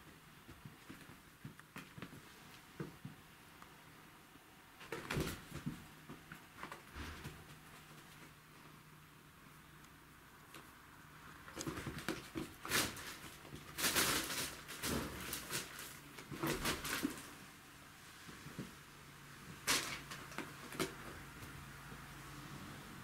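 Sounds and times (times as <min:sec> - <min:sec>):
cats scuffling on carpet: 0:00.0 - 0:03.3, 0:11.4 - 0:22.2
plastic bag rustling: 0:11.6 - 0:17.4.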